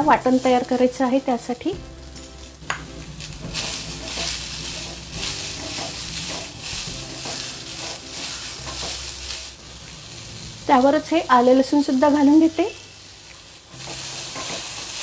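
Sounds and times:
onion hissing in hot pan: 0.0s - 15.0s
spatula scraping pan: 3.5s - 9.6s, 13.8s - 15.0s.

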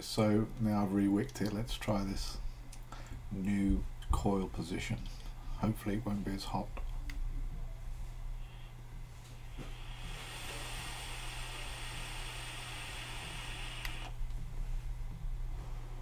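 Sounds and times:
vape coil hiss and sizzle: 9.5s - 14.2s.

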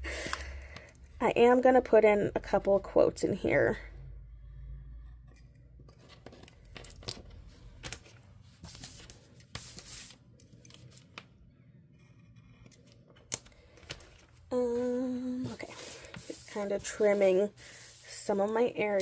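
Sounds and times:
paper sheets scraping: 8.6s - 11.0s, 15.5s - 19.0s.

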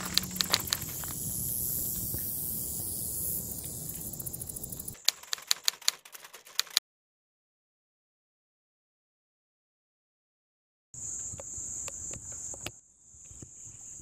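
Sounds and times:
sharp evenly spaced clicks: 0.0s - 1.6s, 2.3s - 6.8s
steady hiss: 0.0s - 5.0s.

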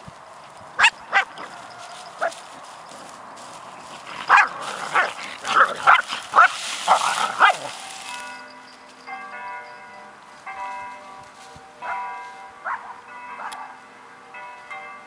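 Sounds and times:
dogs barking: 0.8s - 3.1s, 3.7s - 8.2s, 11.8s - 13.8s
music with chiming bell-like notes: 7.7s - 15.0s.

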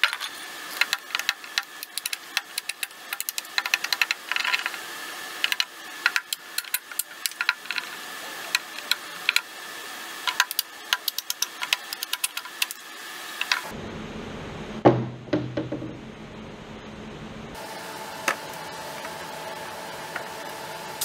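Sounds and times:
low hum: 13.4s - 18.8s
heavy knock: 14.8s - 16.0s.

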